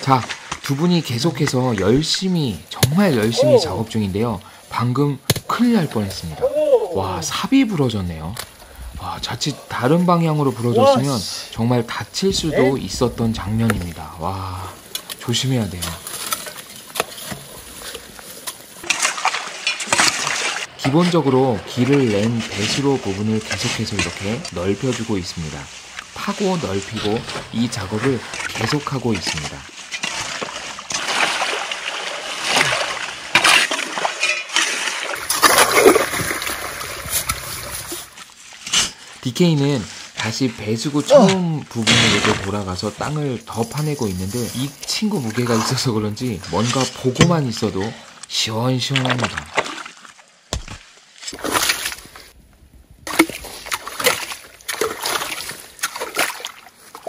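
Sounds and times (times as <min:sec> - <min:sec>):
running muddy water: 0:00.0 - 0:52.4, 0:53.0 - 0:57.0
shovels digging in wet mud: 0:14.9 - 0:21.2, 0:27.0 - 0:39.0, 0:49.0 - 0:52.3, 0:53.1 - 0:57.0.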